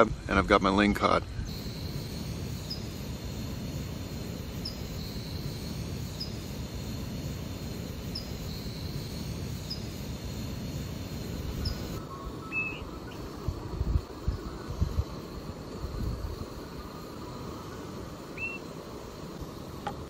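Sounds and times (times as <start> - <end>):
faint high chirp: 2.6 - 3.0, 4.6 - 6.5, 11.5 - 13.4, 18.3 - 18.7.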